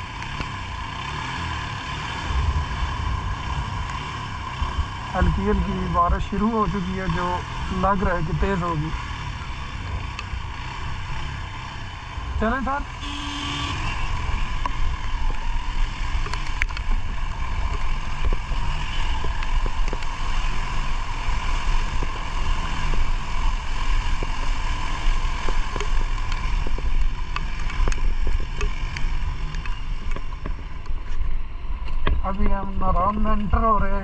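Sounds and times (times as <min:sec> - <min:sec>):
motorcycle engine running: 0:00.0 - 0:34.0
light ticks: 0:10.1 - 0:10.3, 0:16.2 - 0:17.0, 0:24.0 - 0:32.4.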